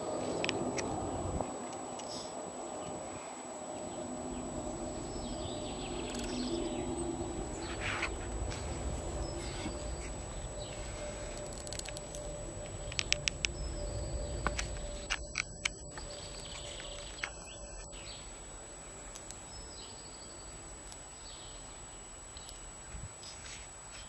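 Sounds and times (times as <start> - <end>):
tortoise squeaking: 7.5 - 17.9.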